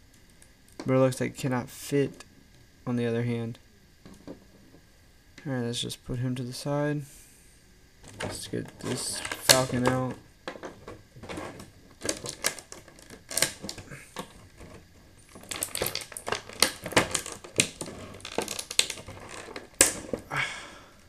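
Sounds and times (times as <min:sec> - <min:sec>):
plastic blister tray crinkling: 0:08.0 - 0:20.3.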